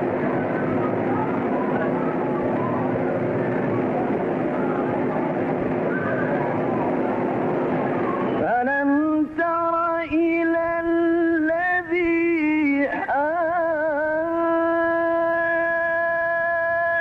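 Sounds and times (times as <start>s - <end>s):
man chanting recitation: 8.4s - 17.0s.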